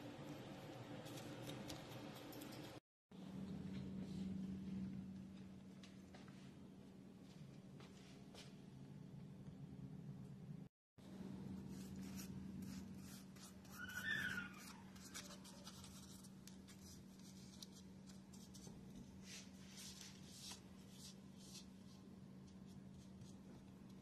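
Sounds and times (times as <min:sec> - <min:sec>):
steady low hum: 0:00.0 - 0:13.5
paintbrush brushing: 0:11.6 - 0:23.4.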